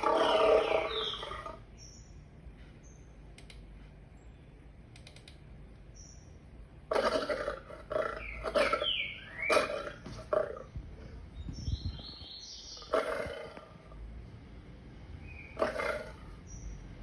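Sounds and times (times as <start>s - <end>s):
lion roaring through speakers: 0.0s - 1.7s, 6.9s - 10.8s, 12.8s - 14.0s, 15.5s - 16.4s
faint clicks: 3.3s - 4.0s, 4.9s - 5.9s.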